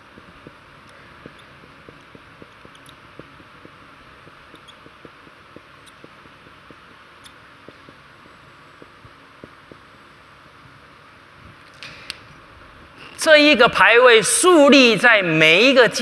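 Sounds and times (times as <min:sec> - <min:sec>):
steady hiss: 0:00.0 - 0:15.9
marker writing on whiteboard: 0:00.1 - 0:09.9.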